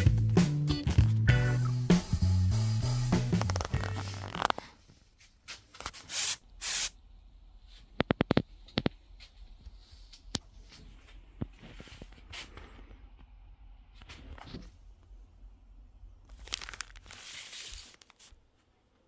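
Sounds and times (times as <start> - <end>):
nozzle spraying: 6.0 - 7.0.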